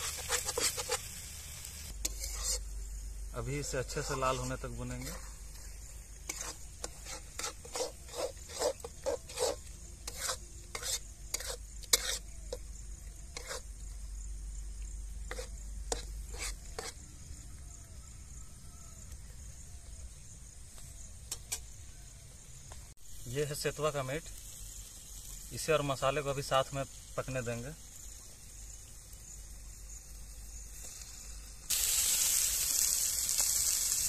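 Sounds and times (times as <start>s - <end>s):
spoon scraping round pan: 0.0s - 2.8s, 3.4s - 13.7s, 15.3s - 17.1s
masala paste sizzling in oil: 0.0s - 34.0s.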